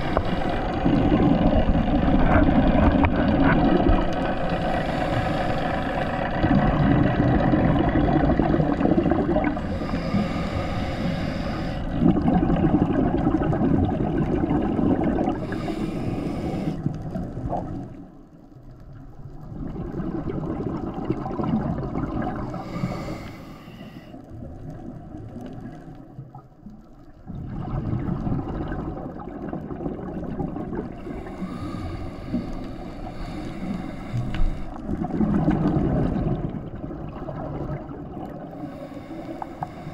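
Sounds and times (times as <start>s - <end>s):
exhaled bubbles rushing: 0.0s - 10.4s, 11.8s - 18.1s, 19.2s - 22.8s, 27.1s - 31.7s, 34.8s - 38.8s
regulator breathing: 9.6s - 11.9s, 15.4s - 16.9s, 22.6s - 24.2s, 31.1s - 34.8s, 38.6s - 39.9s.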